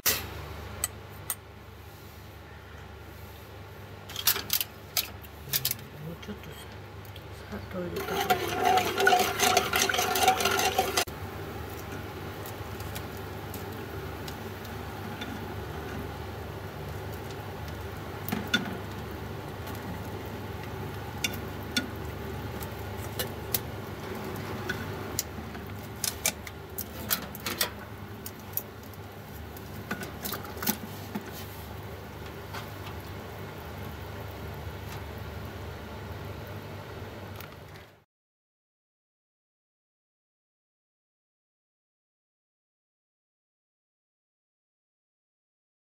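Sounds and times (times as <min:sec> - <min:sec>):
low steady hum: 0:00.0 - 0:38.0
utensil scraping metal pot: 0:07.6 - 0:11.2, 0:21.1 - 0:31.7
utensil clicking against pot: 0:08.0 - 0:11.1.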